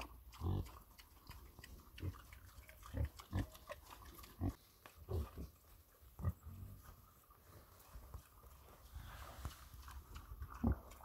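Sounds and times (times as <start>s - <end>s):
pigs grunting: 0.0s - 6.9s, 9.4s - 11.0s
pigs snuffling: 0.0s - 11.0s.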